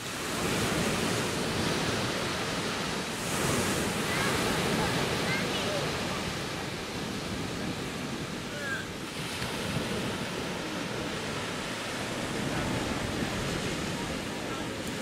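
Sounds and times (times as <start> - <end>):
waves breaking on beach: 0.0 - 15.0.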